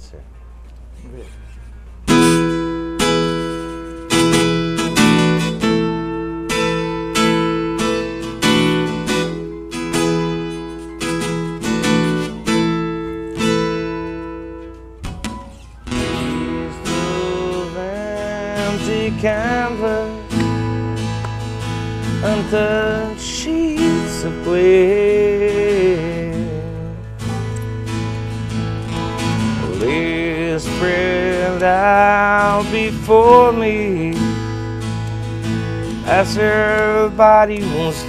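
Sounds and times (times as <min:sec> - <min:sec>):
acoustic guitar picked chords: 0:01.5 - 0:38.0.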